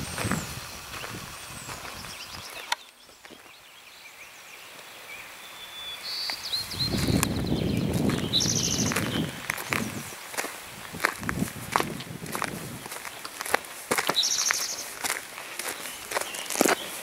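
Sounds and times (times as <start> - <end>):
footsteps on gravel: 0.0 - 3.6, 6.2 - 17.0
high bird chirps: 0.0 - 4.2, 5.2 - 10.2, 14.0 - 14.9.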